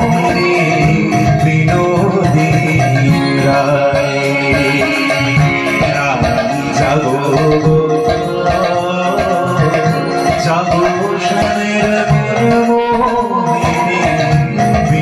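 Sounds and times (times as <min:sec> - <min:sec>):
hand drums: 0:00.0 - 0:15.0
man singing through pa: 0:00.0 - 0:15.0.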